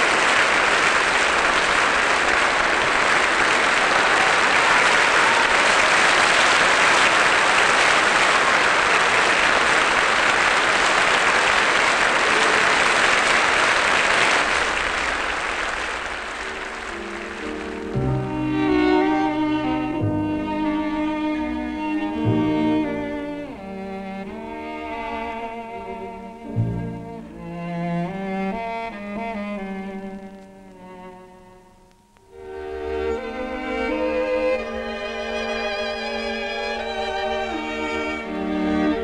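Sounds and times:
audience applauding: 0.0 - 19.5.

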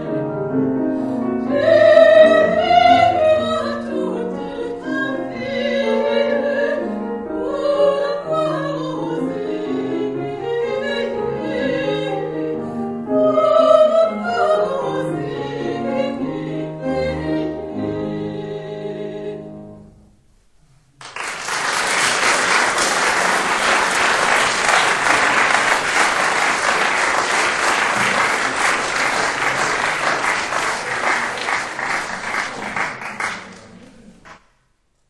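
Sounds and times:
classical music ending: 21.0 - 34.2
audience applauding: 21.0 - 34.4.

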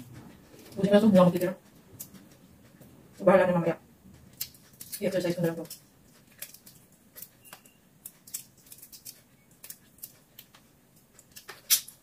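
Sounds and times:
shrimp shells cracking: 4.3 - 5.0, 5.6 - 7.4, 8.0 - 10.6, 11.2 - 12.0.

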